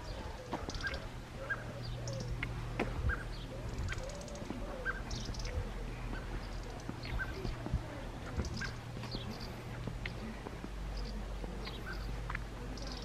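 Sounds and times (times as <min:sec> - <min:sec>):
softer lower bird calls: 0:00.0 - 0:07.6
birds chirping: 0:00.0 - 0:13.0
steady low hum: 0:00.0 - 0:13.0.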